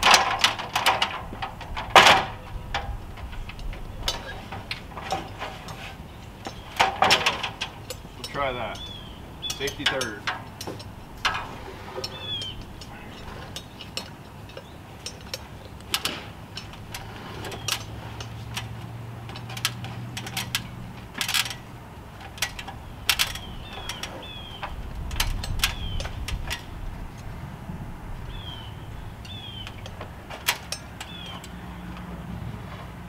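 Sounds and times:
boots on ladder rungs: 0.0s - 33.0s.

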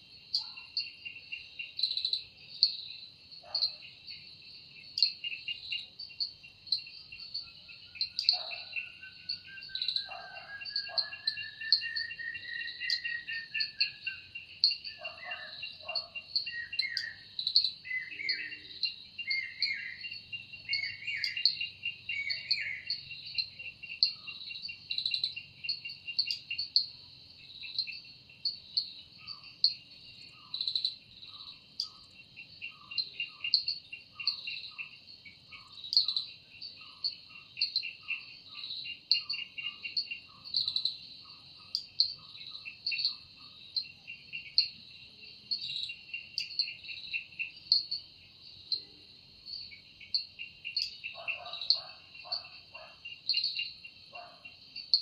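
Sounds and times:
insect chorus pulsing trills: 0.0s - 55.0s
birds calling and chirping: 7.1s - 26.7s, 49.5s - 55.0s.

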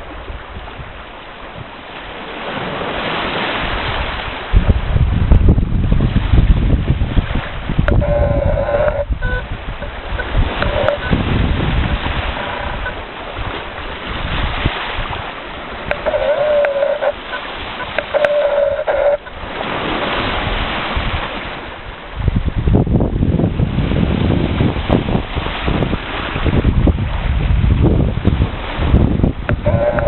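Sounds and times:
waves washing onto rocky shore: 0.0s - 30.0s
wind buffeting microphone: 0.0s - 30.0s
bird wavering calls: 15.9s - 19.3s.

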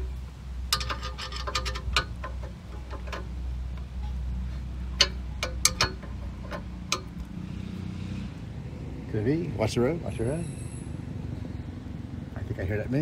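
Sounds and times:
steady low rumble: 0.0s - 13.0s
wrench clicking on bolt: 0.7s - 3.4s, 4.9s - 7.3s.

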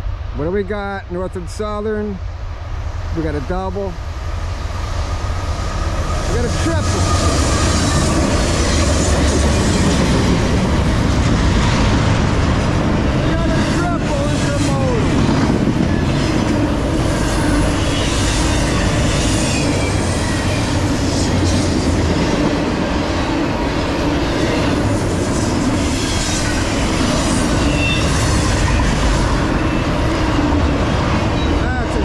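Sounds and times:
steel wheels rumbling on rail: 0.0s - 32.0s
high wheel squeals: 5.5s - 10.2s, 17.1s - 21.9s, 24.3s - 30.4s.

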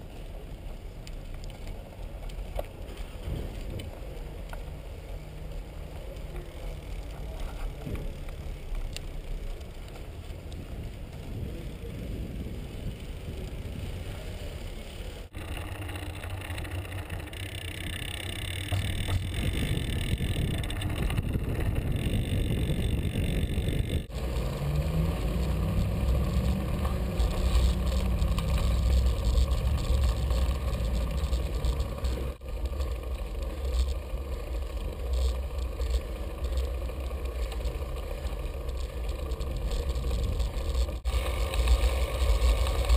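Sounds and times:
road rumble: 0.0s - 42.9s
wind buffeting: 10.3s - 14.6s, 15.2s - 34.2s.

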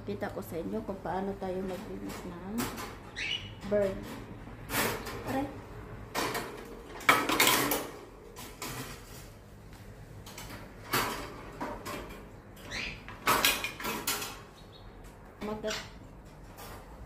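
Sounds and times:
metal birdcage rattling: 10.3s - 14.6s.

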